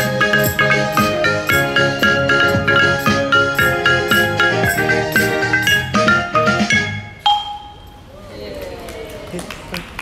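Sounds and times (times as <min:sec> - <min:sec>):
metal pots struck with sticks: 0:07.3 - 0:07.8.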